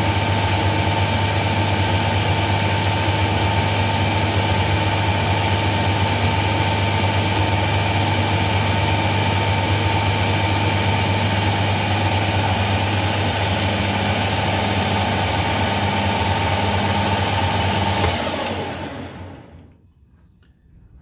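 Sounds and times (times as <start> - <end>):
lathe humming: 0.1 - 19.7
spindle winding down: 10.0 - 19.7
lathe switch click: 17.9 - 18.7.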